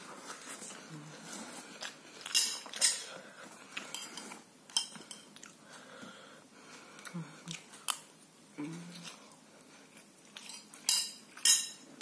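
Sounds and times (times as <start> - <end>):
fork clinking and scraping on plate: 3.8 - 5.3, 10.4 - 11.8.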